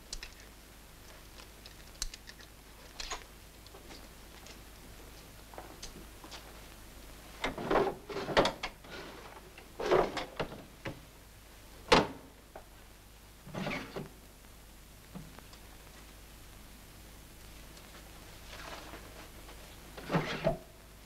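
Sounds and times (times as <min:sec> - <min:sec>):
rummaging scrapes and knocks: 0:07.4 - 0:10.5.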